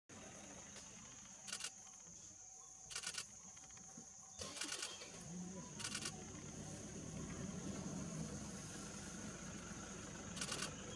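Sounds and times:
camera shutter rapid clicks: 0:02.9 - 0:03.3, 0:04.6 - 0:05.0, 0:10.4 - 0:10.7.

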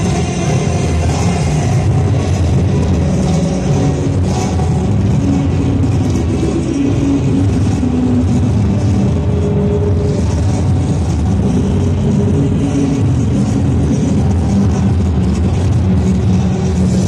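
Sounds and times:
loud dance music over speakers: 0:00.0 - 0:17.0.

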